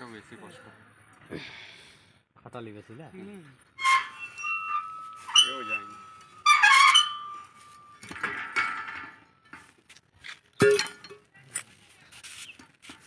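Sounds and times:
ringing metal note: 3.8 - 8.7
metal tools clinking and clanking: 3.8 - 9.8.

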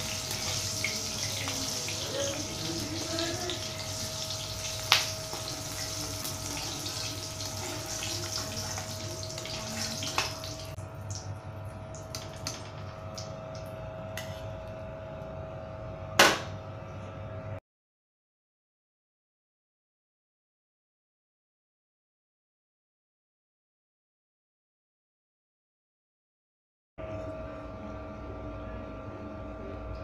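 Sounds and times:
chillies sizzling in hot oil: 0.0 - 10.8.

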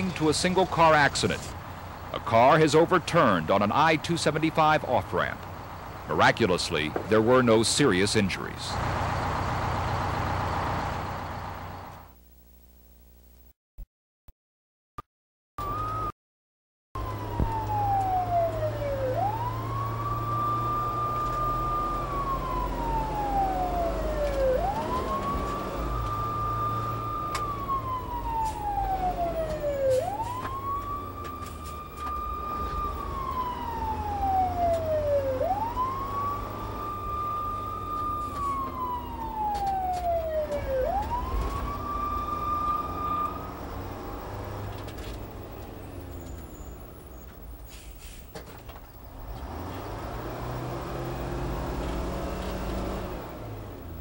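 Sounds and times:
fire engine rumble: 0.0 - 12.1, 17.0 - 50.0
siren wailing: 15.6 - 16.1, 17.0 - 47.0.

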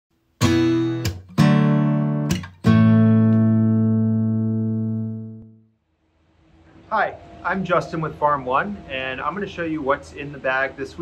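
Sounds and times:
strummed guitar chords: 0.4 - 5.7.

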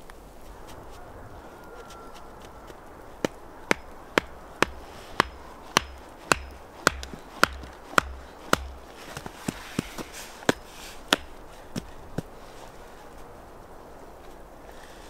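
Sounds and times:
axe chopping wood: 3.2 - 11.9.

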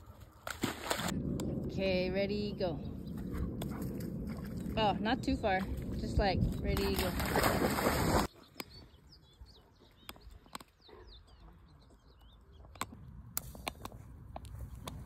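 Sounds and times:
small birds chirping: 2.3 - 7.3, 8.3 - 15.0.

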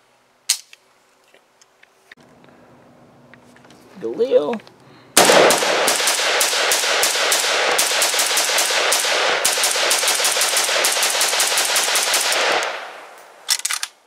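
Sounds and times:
rifle rapid fire: 5.2 - 13.9.

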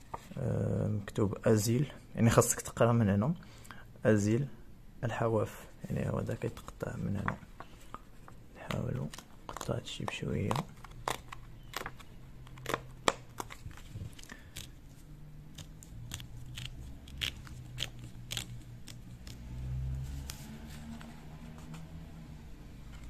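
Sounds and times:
perforated paper tearing: 10.5 - 21.6.

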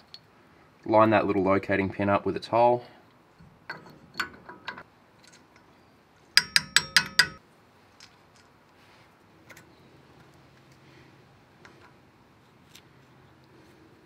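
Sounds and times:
metal parts clinking: 3.4 - 5.7.

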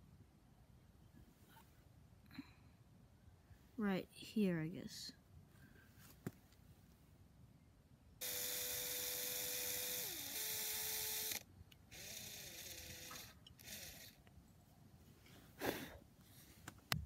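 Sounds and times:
electric drill boring into concrete: 8.2 - 14.2.

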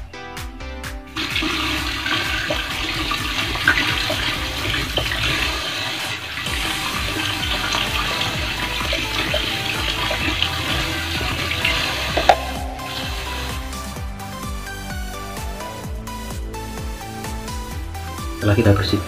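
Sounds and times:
tap water running and splashing: 1.2 - 14.0.

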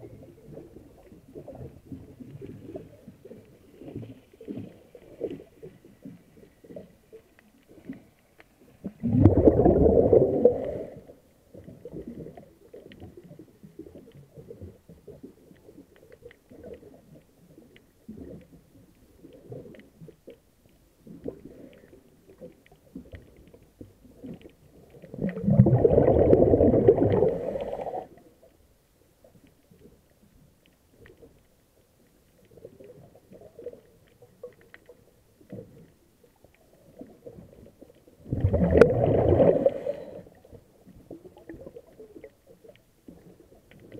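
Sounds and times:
faint crackling and ticking: 0.0 - 43.9
underwater breath bubbles: 7.7 - 13.1, 24.2 - 28.4, 38.2 - 42.3.

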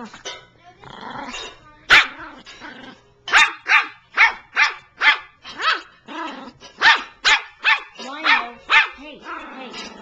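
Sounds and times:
small dog barking: 1.9 - 2.2, 3.3 - 5.9, 6.8 - 9.0.

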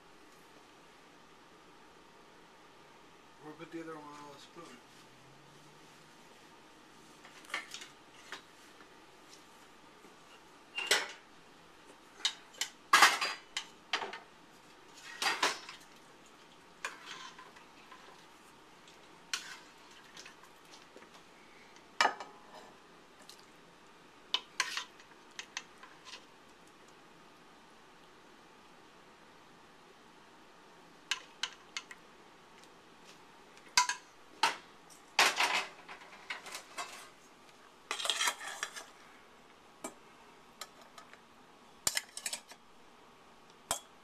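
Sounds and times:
metal utensils clinking: 37.9 - 38.8, 41.9 - 42.6.

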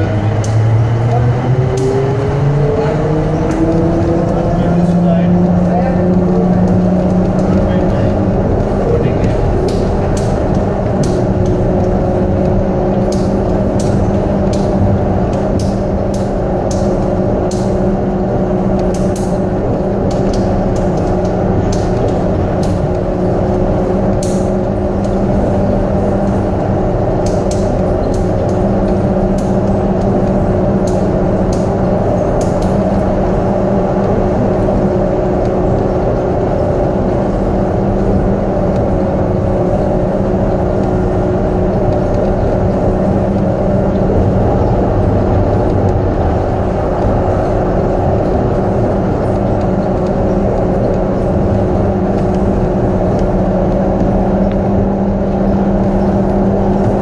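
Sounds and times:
train running through tunnel: 0.0 - 57.0
sharp ticks: 3.5 - 57.0.

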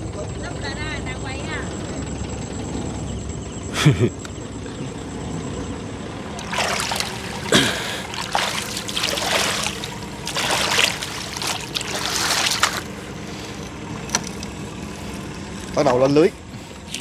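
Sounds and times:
water splashing beside boat: 6.2 - 17.0.

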